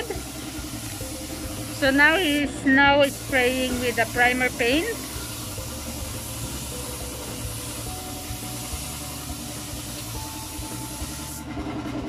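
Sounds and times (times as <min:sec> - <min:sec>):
spray gun hissing: 0:00.0 - 0:11.4.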